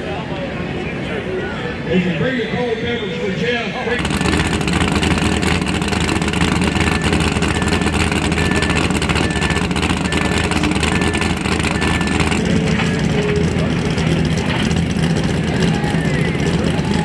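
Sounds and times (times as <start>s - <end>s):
buggy engine running loudly: 3.9s - 17.0s.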